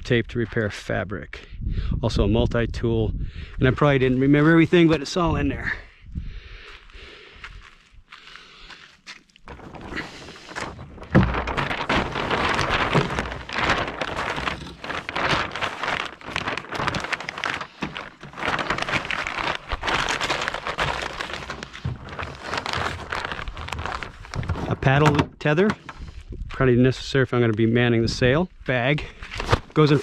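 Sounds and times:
stiff fabric crackling and rustling: 9.0s - 25.2s, 29.2s - 30.0s.

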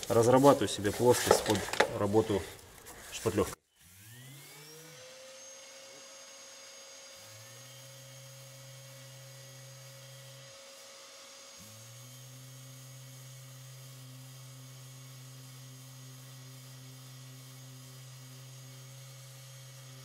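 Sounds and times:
electric sander whining: 3.7s - 20.0s.

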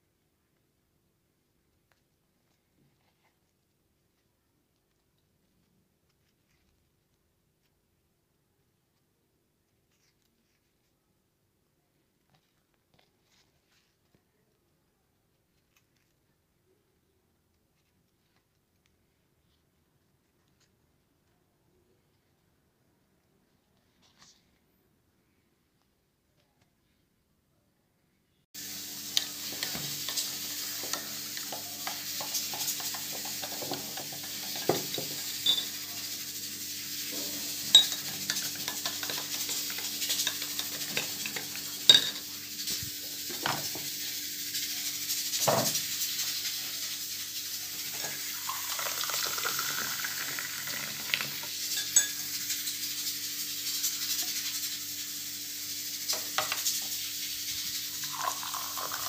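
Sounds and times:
metal spoon clinking on glass: 35.4s - 35.7s, 37.7s - 39.2s, 41.9s - 42.2s, 51.7s - 52.3s.

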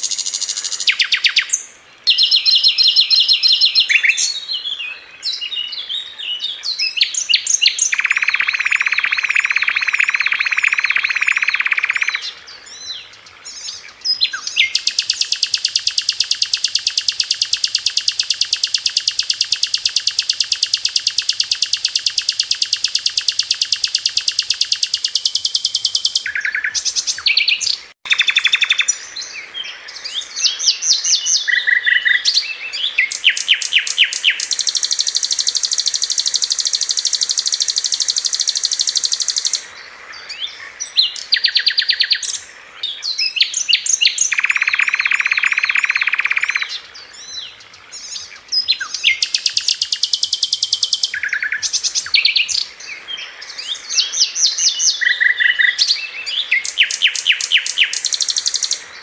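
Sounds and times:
fast buzzing bird trill: 0.0s - 4.3s, 7.2s - 12.3s, 14.4s - 28.9s, 33.0s - 39.6s, 43.6s - 46.8s, 48.9s - 52.6s, 54.0s - 58.8s
sharp bird chirps and whistles: 0.0s - 29.0s, 30.0s - 39.6s, 40.4s - 42.4s, 43.0s - 47.4s, 48.0s - 52.7s, 53.5s - 58.8s
lower bird trill: 0.0s - 29.4s, 30.0s - 39.6s, 40.3s - 42.4s, 43.0s - 47.4s, 48.0s - 59.0s.

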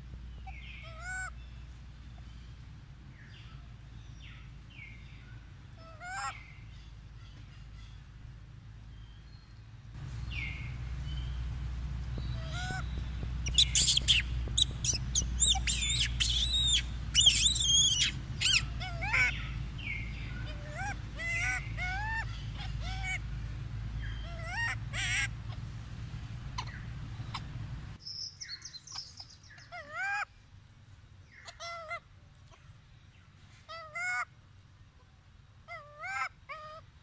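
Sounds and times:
low steady hum: 0.0s - 37.0s
monkeys screaming: 5.8s - 6.4s, 12.4s - 12.8s, 13.4s - 23.3s, 24.0s - 25.6s, 26.6s - 27.5s, 28.9s - 30.3s, 35.7s - 36.8s
monkey calls rising and falling: 10.3s - 27.9s, 35.7s - 36.9s.

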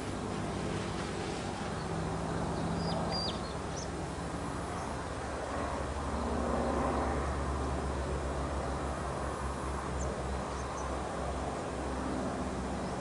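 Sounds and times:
low engine hum: 0.0s - 13.0s
high bird chirps: 2.8s - 3.9s.

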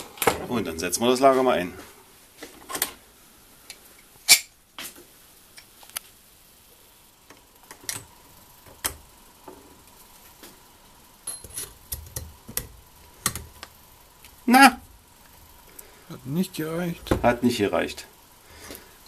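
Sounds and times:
metallic clicks and clinks: 11.2s - 12.2s.

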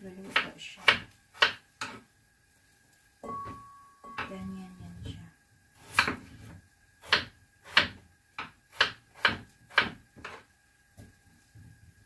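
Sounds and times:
knife chopping on cutting board: 0.2s - 2.0s, 5.8s - 10.4s.

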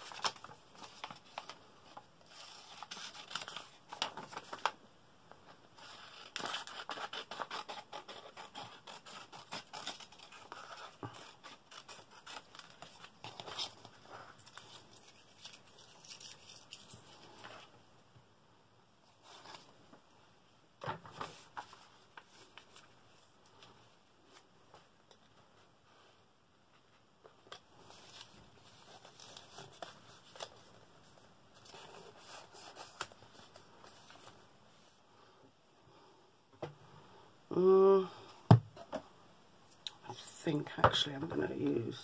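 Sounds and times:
paper rustling: 0.0s - 4.8s, 5.4s - 17.7s, 21.0s - 24.9s, 26.8s - 34.9s
scissors snipping paper: 6.3s - 13.7s.

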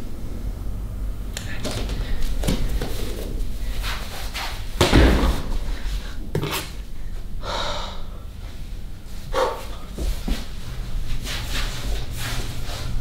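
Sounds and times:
dull thumps: 4.8s - 6.5s
long breath out: 7.4s - 8.3s.

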